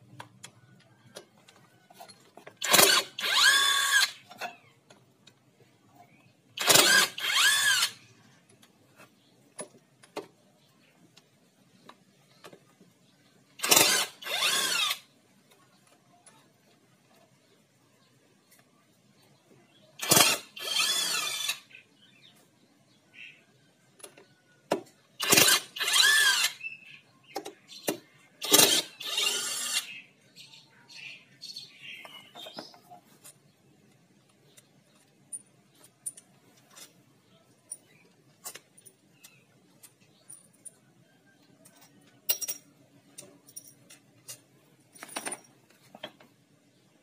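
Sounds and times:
cordless impact driver running: 0:02.6 - 0:04.2, 0:06.6 - 0:08.0, 0:13.6 - 0:15.0, 0:20.0 - 0:21.6, 0:25.2 - 0:26.5, 0:28.4 - 0:29.9.

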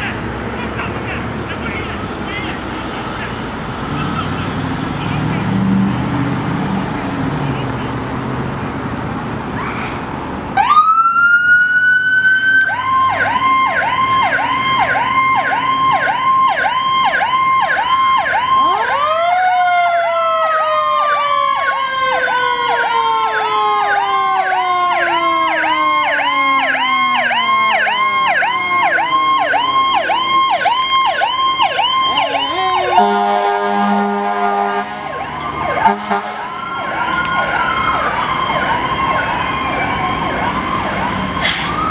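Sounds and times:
road noise: 0:00.0 - 0:41.9
electronic siren yelping: 0:10.6 - 0:41.9
second siren tone rising and falling: 0:10.6 - 0:41.9
air horn blast: 0:32.3 - 0:35.2, 0:35.8 - 0:36.5.

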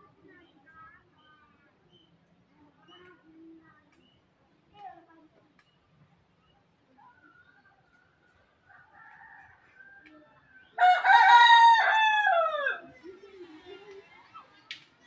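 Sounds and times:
rooster crowing: 0:10.8 - 0:12.9.

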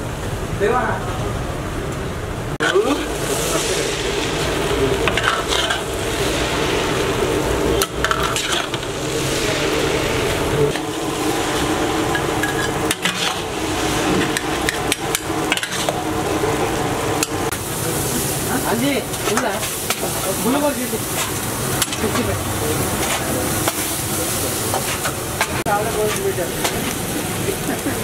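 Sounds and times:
frying sizzle in a wok: 0:00.0 - 0:28.0
metal spatula scraping a pan: 0:02.6 - 0:07.1, 0:07.8 - 0:16.0, 0:19.1 - 0:24.0.

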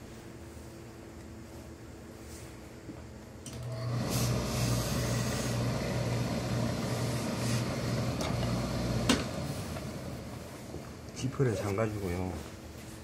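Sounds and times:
steam iron machine hum: 0:00.0 - 0:13.0
steam hissing: 0:03.8 - 0:10.5.

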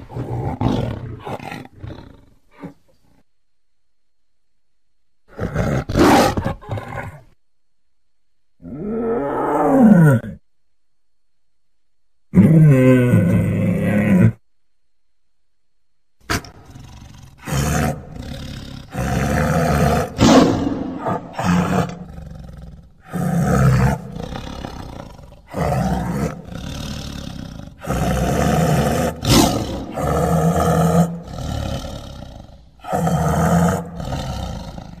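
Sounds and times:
tiger roaring and growling: 0:00.0 - 0:03.0, 0:05.3 - 0:07.2, 0:08.6 - 0:10.4, 0:12.3 - 0:14.4, 0:16.3 - 0:35.0.

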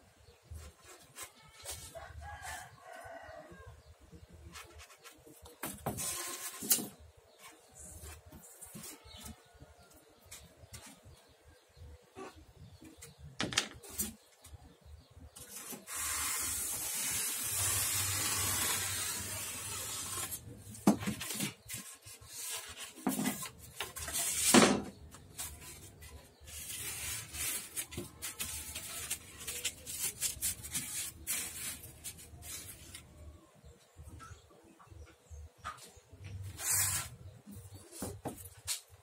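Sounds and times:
foam pieces scraping and rustling: 0:04.6 - 0:07.0, 0:15.4 - 0:33.2, 0:36.5 - 0:37.2
knife cutting styrofoam: 0:15.4 - 0:33.1, 0:36.5 - 0:37.2.

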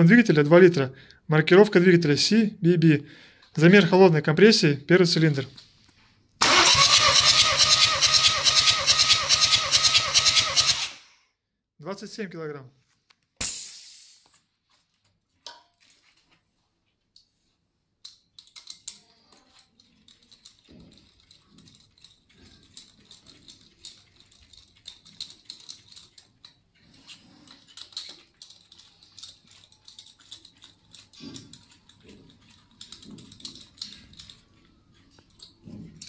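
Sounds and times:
hand tools tapping on metal: 0:20.4 - 0:36.0.

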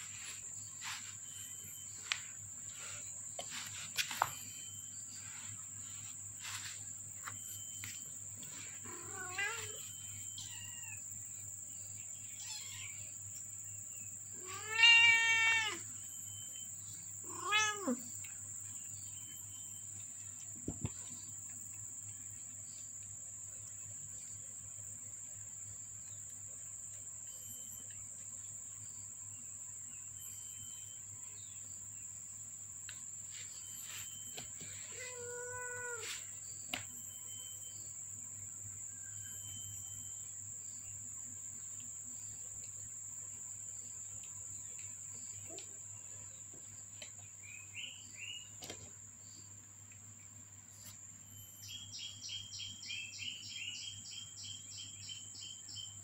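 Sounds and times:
cat meowing: 0:08.9 - 0:09.8, 0:14.4 - 0:15.8, 0:17.3 - 0:18.0, 0:35.0 - 0:36.1.

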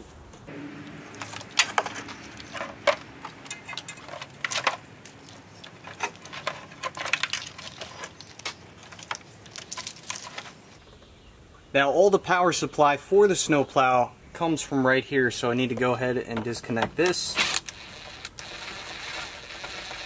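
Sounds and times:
plugs and wires clattering: 0:00.8 - 0:10.8.

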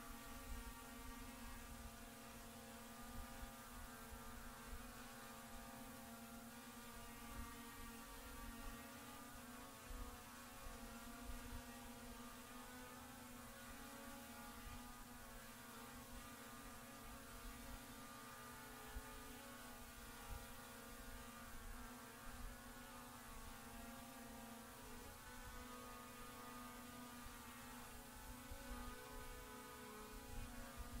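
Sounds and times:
faint mechanical hum: 0:00.0 - 0:31.0.

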